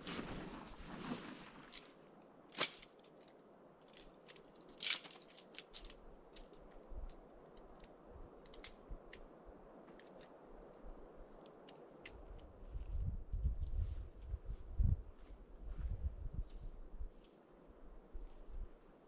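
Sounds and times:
camp gear rustling and clicking: 1.6 - 12.9.

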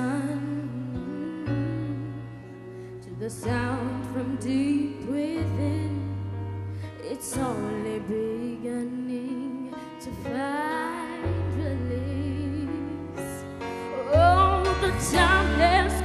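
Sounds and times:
girl singing into a microphone: 0.0 - 2.3, 7.0 - 16.0.

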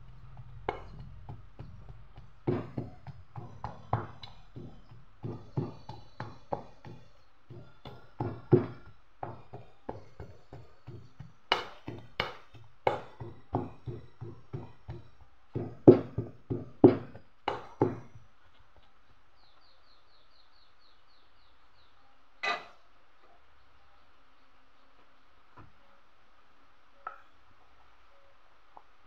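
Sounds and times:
pestle pounding in steel bowl: 0.0 - 18.2.

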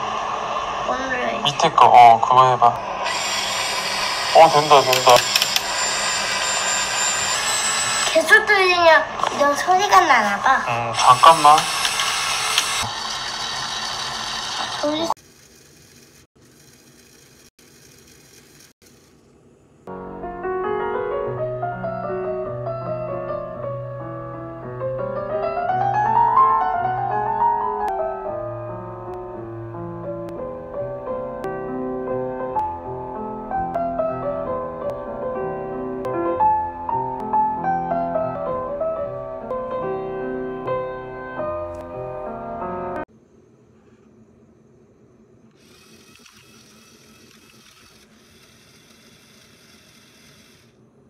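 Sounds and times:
high-pitched whine: 0.0 - 16.0
electric motors whirring: 2.7 - 19.5, 45.5 - 50.9
piano music: 19.9 - 43.1.

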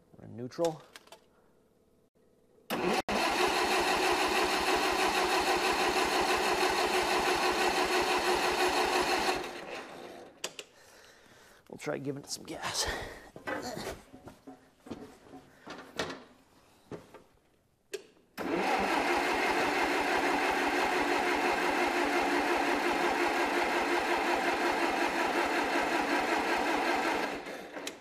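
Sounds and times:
engine cranking on starter: 2.7 - 10.4, 18.4 - 28.0.

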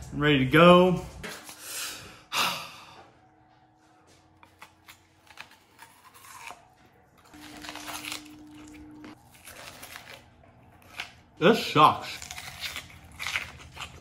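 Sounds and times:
teeth crunching raw onion: 4.4 - 14.0.

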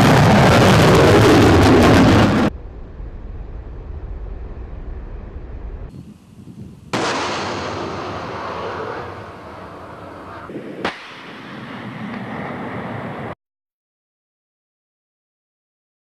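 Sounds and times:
missile launch blast: 0.0 - 5.9, 6.9 - 9.9
rocket booster roar: 0.0 - 5.9
rumble: 0.0 - 13.4
sharp bang: 7.0 - 9.5, 10.5 - 12.4.

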